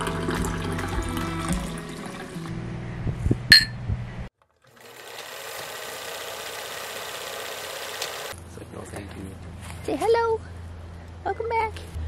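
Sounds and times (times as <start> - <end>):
drinking glasses clinking: 3.5 - 3.8
fast mechanical whirring rattle: 4.8 - 8.4.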